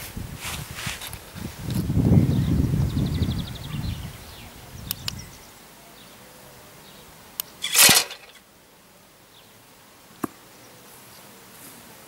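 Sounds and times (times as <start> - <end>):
mesh bed clattering open: 7.6 - 8.4.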